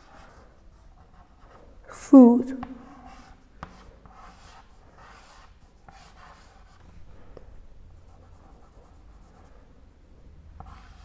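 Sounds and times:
chalk scratching on chalkboard: 0.0s - 1.7s, 2.9s - 7.0s, 8.0s - 9.6s, 10.6s - 11.0s.

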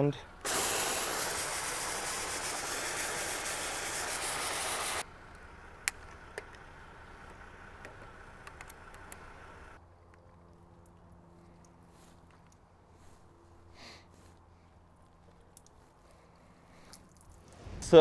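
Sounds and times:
compressed air hissing from nozzle: 0.4s - 5.0s.

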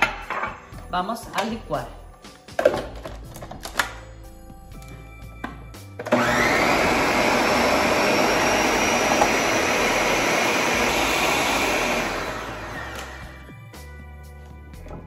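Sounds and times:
blender motor running: 6.1s - 13.5s.

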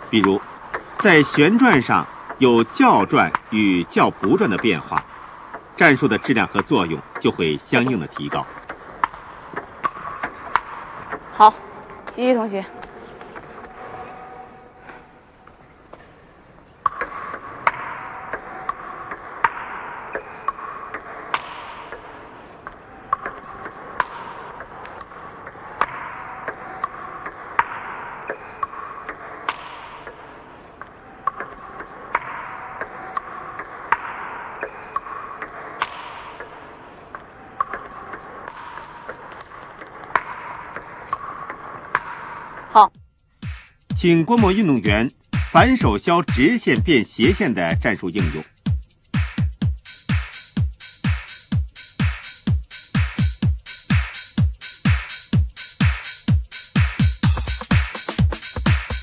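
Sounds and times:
table tennis ball clicking: 3.0s - 11.4s, 16.7s - 42.8s.

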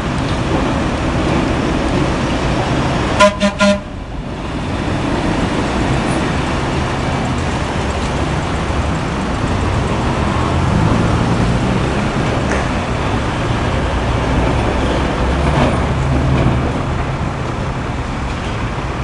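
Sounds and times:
streetcar rolling on rails: 0.0s - 19.0s
horn toots: 3.2s - 4.0s.

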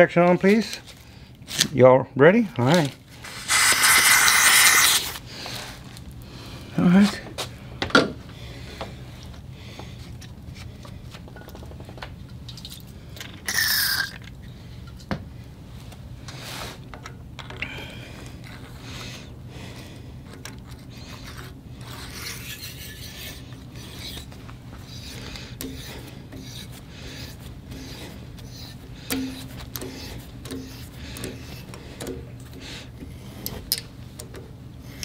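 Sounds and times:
thread tap scraping metal: 20.3s - 35.0s.

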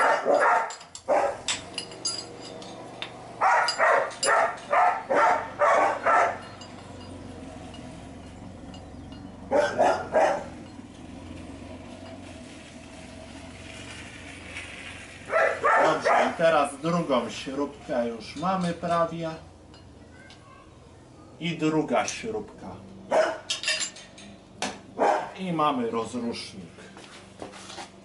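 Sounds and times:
dog barking: 0.0s - 1.4s, 3.4s - 6.4s, 9.5s - 10.5s, 15.3s - 16.4s, 23.1s - 23.5s, 25.0s - 25.4s.

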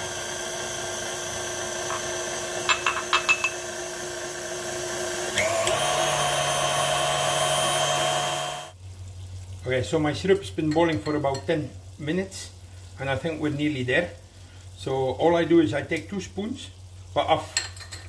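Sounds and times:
stand mixer whisk whining: 0.0s - 8.8s.

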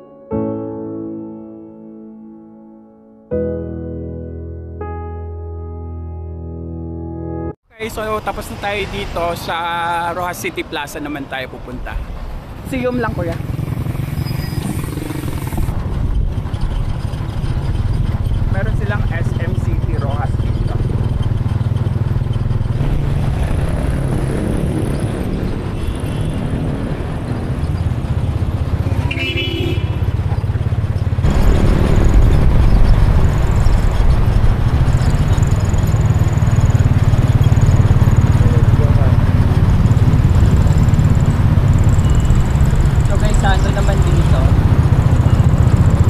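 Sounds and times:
road noise: 7.7s - 46.0s
motorcycle engine running: 12.6s - 46.0s.

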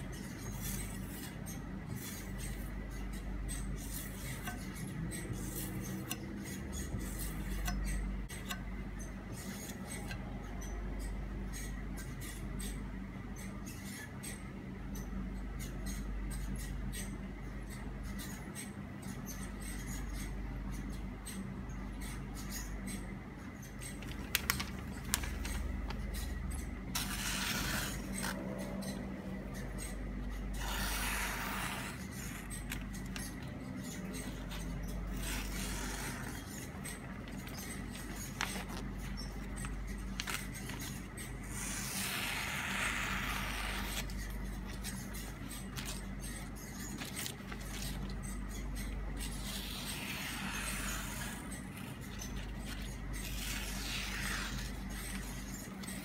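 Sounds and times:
knife slicing paper: 27.0s - 28.4s, 49.3s - 55.5s.

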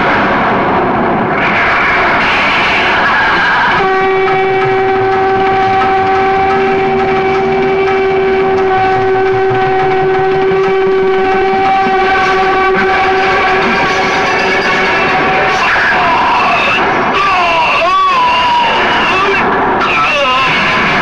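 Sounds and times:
low rumble: 0.0s - 19.8s
long steady horn-like note: 3.6s - 16.8s.

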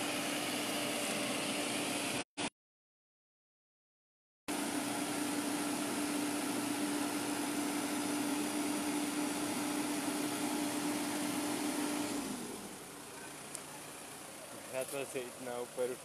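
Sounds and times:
diesel engine running: 4.5s - 16.0s.

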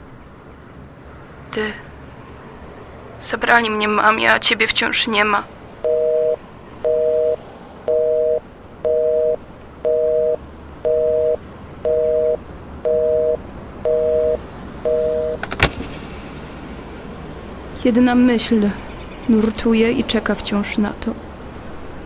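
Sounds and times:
telephone busy signal: 5.8s - 15.4s.

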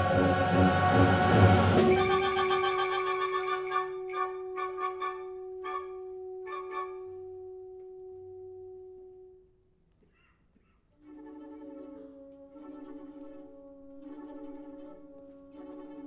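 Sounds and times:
orchestra short accented chords: 0.0s - 9.3s
orchestra sustained note: 0.0s - 9.4s.

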